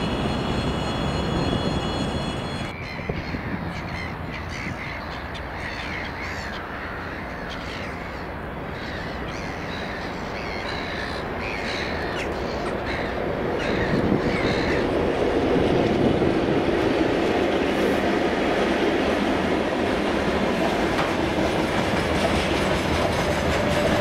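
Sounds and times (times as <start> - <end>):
approaching freight train rumble: 0.0 - 24.0
crows cawing: 2.8 - 15.0.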